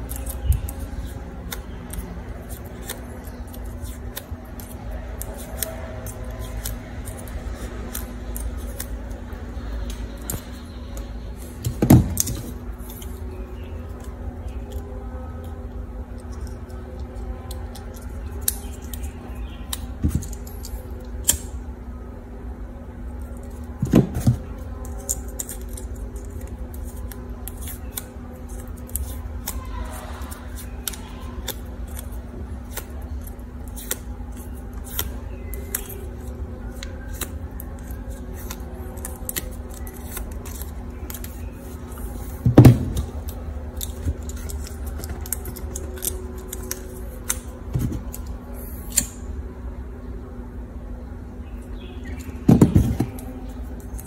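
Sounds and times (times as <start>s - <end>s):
scissors snipping plastic straw: 0.0s - 9.2s, 16.2s - 21.6s, 24.2s - 49.3s
steady low hum: 0.0s - 54.0s.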